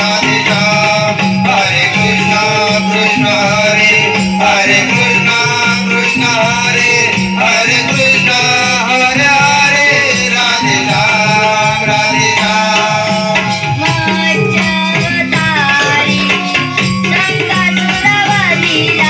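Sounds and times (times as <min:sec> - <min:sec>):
rhythmic drum: 0:00.0 - 0:19.0
child singing through loudspeakers: 0:13.9 - 0:19.0.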